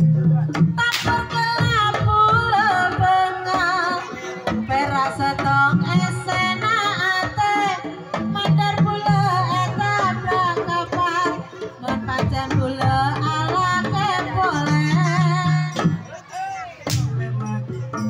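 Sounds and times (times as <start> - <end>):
hand drums beating: 0.0 - 18.0.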